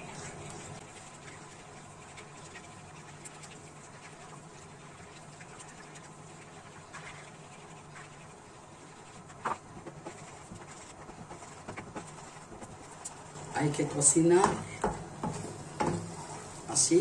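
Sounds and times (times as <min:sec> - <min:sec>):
low steady hum: 0:00.0 - 0:17.0
wooden spoon scraping pan: 0:09.2 - 0:17.0.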